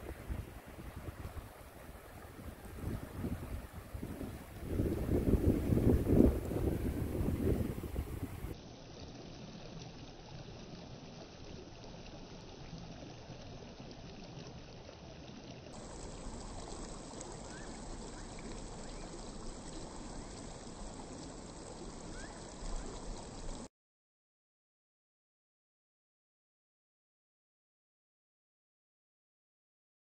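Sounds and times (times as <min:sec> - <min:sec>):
stream running over stones: 0:00.0 - 0:23.7.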